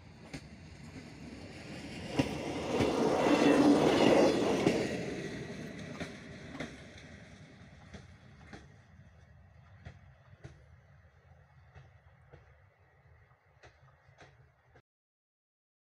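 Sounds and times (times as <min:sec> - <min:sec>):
vehicle passing by: 0:02.0 - 0:06.5.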